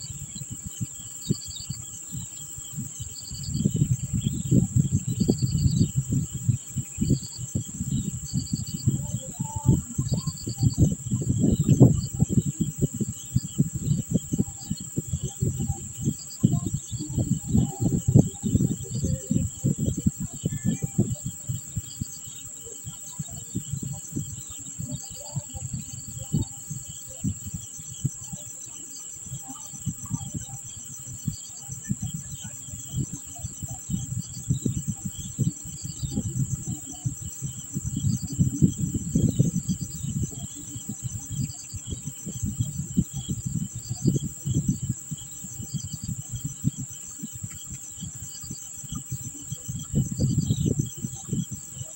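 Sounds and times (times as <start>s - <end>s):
high-pitched insect drone: 0.0s - 51.9s.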